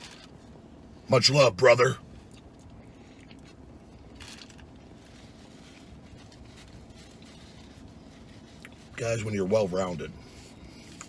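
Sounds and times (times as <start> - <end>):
low background hum: 0.0 - 11.0
person chewing: 2.2 - 8.9.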